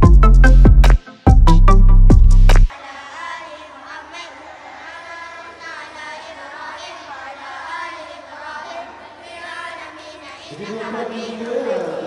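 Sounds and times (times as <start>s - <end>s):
children singing a chant: 2.7s - 12.0s.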